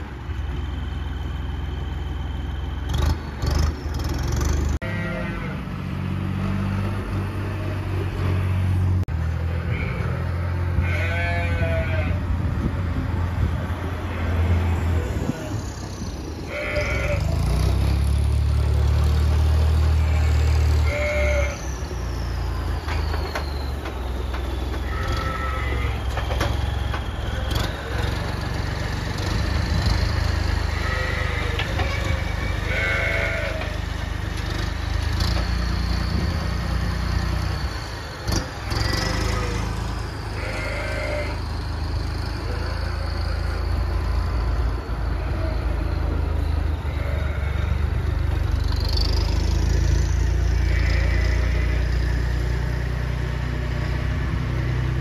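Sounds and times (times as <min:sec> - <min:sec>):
tractor engine running: 0:00.0 - 0:55.0
sheep bleating: 0:04.8 - 0:05.7, 0:09.4 - 0:12.2, 0:16.4 - 0:17.6, 0:19.9 - 0:21.6, 0:24.8 - 0:26.1, 0:30.6 - 0:33.9, 0:38.4 - 0:41.5, 0:42.4 - 0:43.8, 0:46.8 - 0:47.9, 0:50.4 - 0:52.1.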